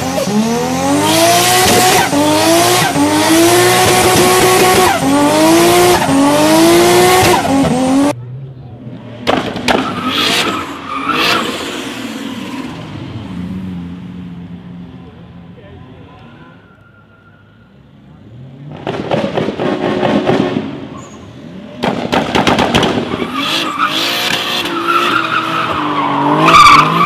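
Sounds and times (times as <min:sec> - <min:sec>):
car engine revving: 0:00.0 - 0:08.2, 0:08.8 - 0:15.2, 0:18.2 - 0:27.0
tyre squeal: 0:16.3 - 0:17.9, 0:20.9 - 0:21.4.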